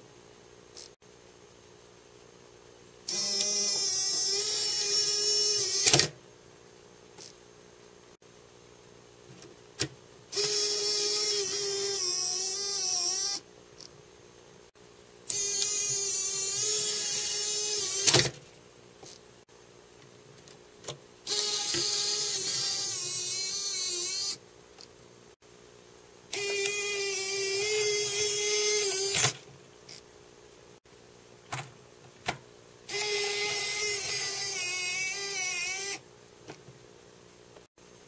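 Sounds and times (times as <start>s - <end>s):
small motor whirring: 3.1s - 6.1s, 10.3s - 13.4s, 15.3s - 18.3s, 21.3s - 24.4s, 26.3s - 30.0s, 32.9s - 36.0s
tape mechanism clicks: 15.3s - 18.4s, 26.3s - 30.0s, 32.9s - 36.0s.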